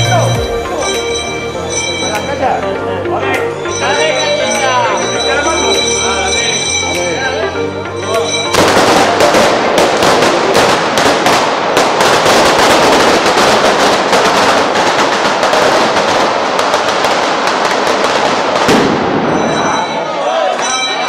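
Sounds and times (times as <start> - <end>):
firecrackers going off: 8.3 - 21.0.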